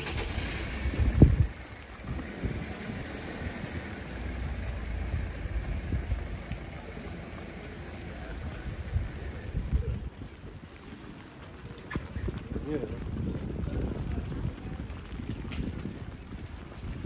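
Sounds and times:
low rumble: 0.0s - 10.7s
rain on a wet street: 0.0s - 17.0s.

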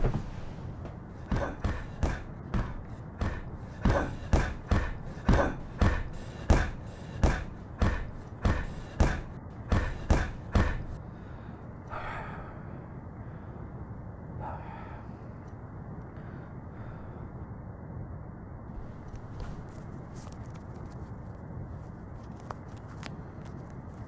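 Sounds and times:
heavy thumps: 0.0s - 11.0s
low steady background: 0.0s - 24.0s.

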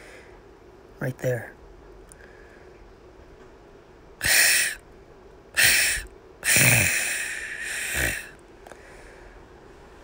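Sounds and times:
person hissing: 4.2s - 4.8s, 5.6s - 8.4s.

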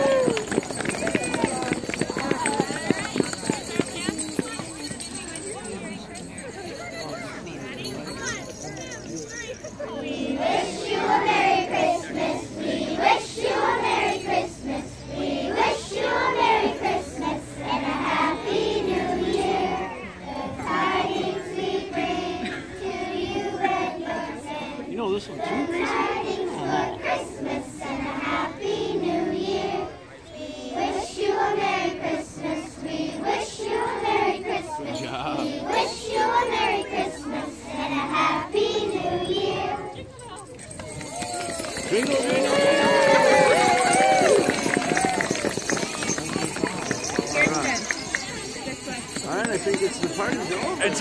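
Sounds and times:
girls singing a carol: 9.9s - 40.0s.

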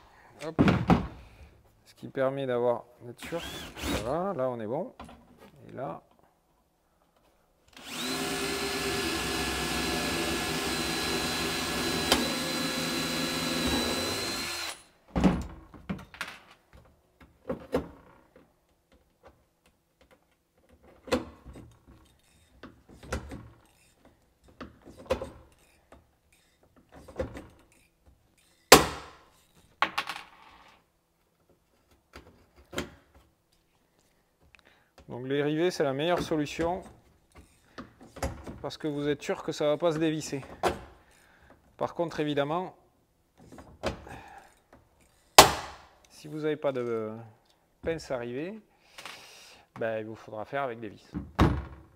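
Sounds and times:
cordless drill boring into plastic: 3.2s - 4.1s, 7.8s - 14.9s.

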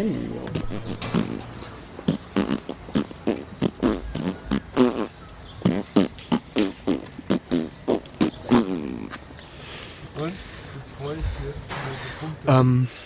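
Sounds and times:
beatbox mouth noises: 0.4s - 9.2s.

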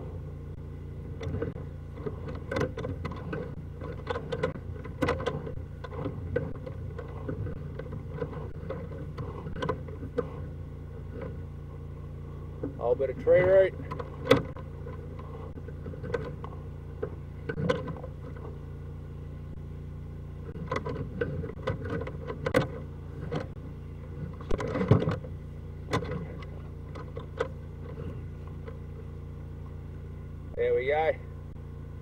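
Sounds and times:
engine drone: 0.0s - 32.0s
cable scraping and rattling in pipe: 1.0s - 11.8s, 12.6s - 18.7s, 20.4s - 28.9s.

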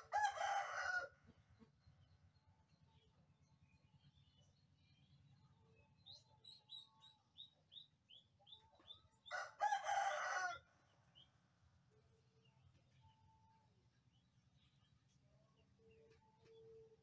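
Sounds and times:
rooster crowing: 0.0s - 1.1s, 9.3s - 10.6s
small bird chirping: 1.6s - 9.3s.

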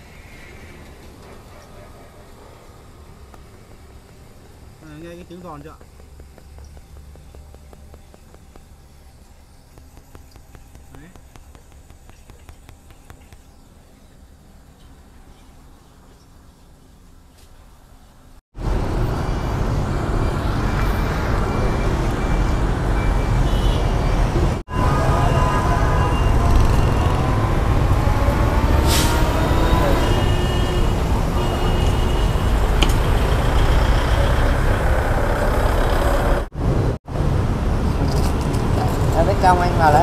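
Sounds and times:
street traffic passing: 0.0s - 40.0s
engine rising in pitch: 18.6s - 36.5s.

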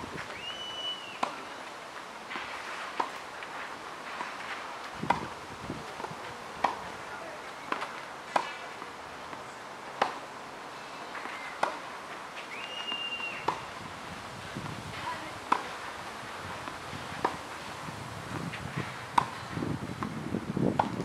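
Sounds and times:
racket hitting tennis ball: 1.2s - 1.4s, 4.1s - 5.4s, 6.6s - 6.9s, 7.7s - 8.8s, 10.0s - 10.2s, 13.4s - 13.7s, 14.9s - 15.8s, 18.4s - 20.1s, 20.7s - 21.0s.

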